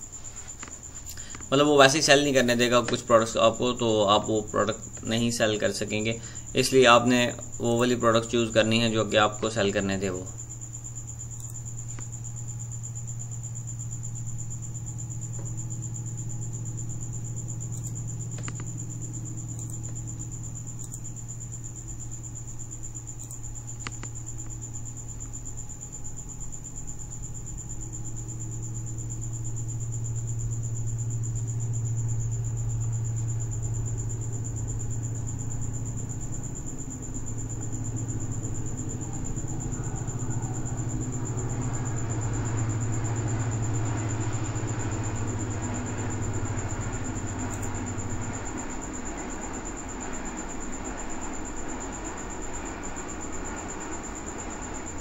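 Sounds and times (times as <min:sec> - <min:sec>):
high-pitched whine: 0:00.0 - 0:55.0
low background hum: 0:00.0 - 0:55.0
faint clicks: 0:11.3 - 0:12.2, 0:17.7 - 0:18.8, 0:23.2 - 0:24.6.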